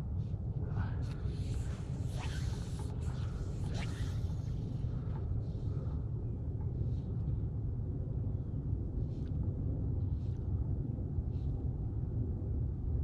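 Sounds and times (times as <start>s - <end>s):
wind rumble on microphone: 0.0s - 13.0s
faint swishes: 0.6s - 5.9s.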